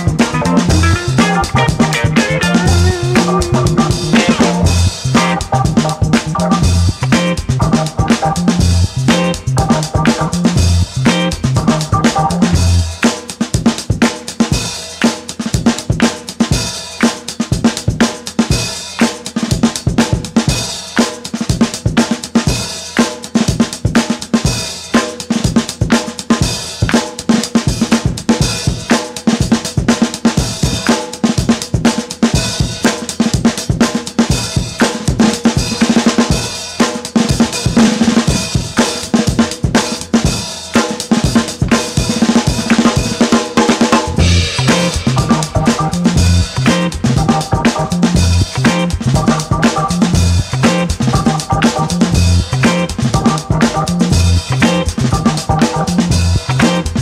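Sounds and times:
band music: 0:00.0 - 0:17.1, 0:32.3 - 0:57.0
funk drum beat: 0:00.0 - 0:57.0.

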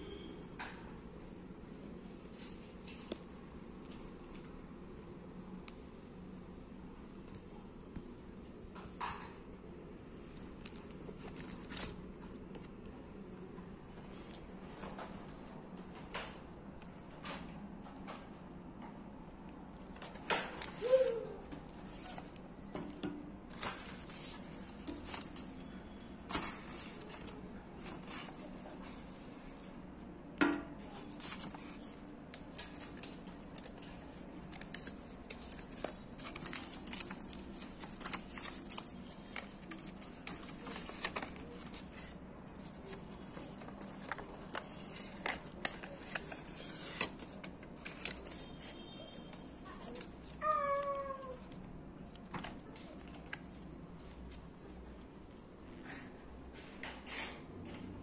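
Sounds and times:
paper rustling and crinkling: 0:10.3 - 0:16.4, 0:19.7 - 0:29.9, 0:30.8 - 0:55.1.

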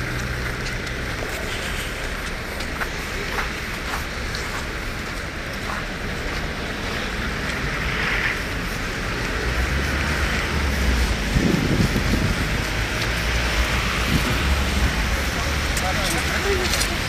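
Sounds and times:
city traffic: 0:00.0 - 0:17.0
wind on microphone: 0:10.2 - 0:15.2.

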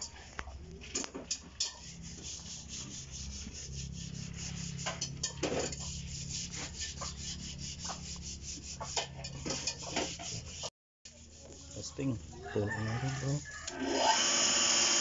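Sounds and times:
electric water pump running: 0:13.7 - 0:15.0.

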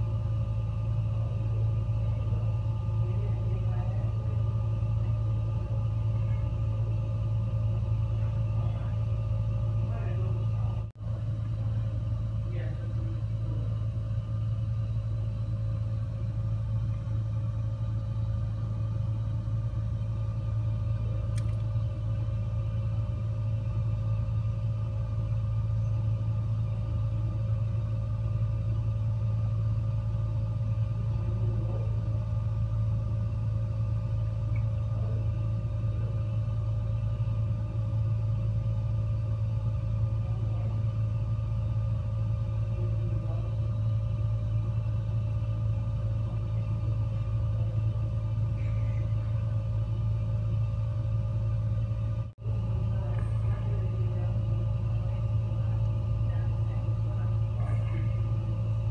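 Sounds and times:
faint steady hum: 0:00.0 - 0:58.9
gas fireplace flames rumbling: 0:00.0 - 0:58.9.

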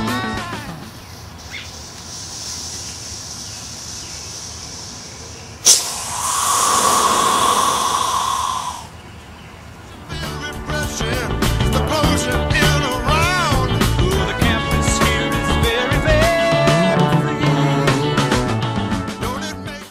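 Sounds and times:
rocket propellant hissing: 0:02.0 - 0:09.0.

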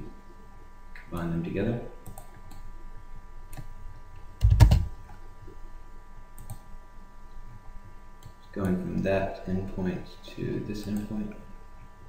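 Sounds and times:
computer keyboard keystrokes: 0:04.4 - 0:04.9, 0:06.4 - 0:06.6.

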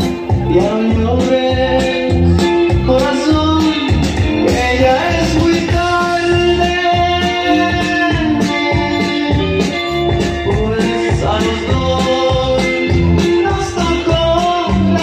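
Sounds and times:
loud dance music: 0:00.0 - 0:15.0.

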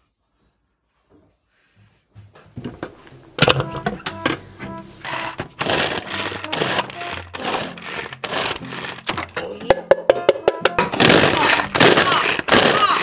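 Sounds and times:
music: 0:02.6 - 0:13.0
hand food chopper whirring: 0:05.0 - 0:09.5, 0:10.8 - 0:13.0.

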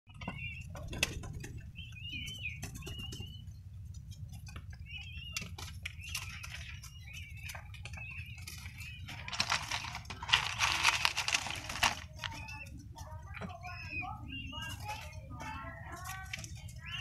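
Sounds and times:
dove begging squeals: 0:04.7 - 0:17.0
rustling clicks: 0:08.5 - 0:12.4.

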